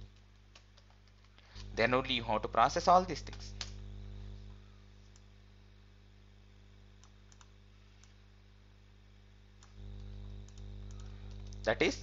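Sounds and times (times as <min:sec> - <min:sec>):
low electrical hum: 0:00.0 - 0:12.0
faint computer clicks: 0:07.0 - 0:08.2, 0:09.6 - 0:11.7.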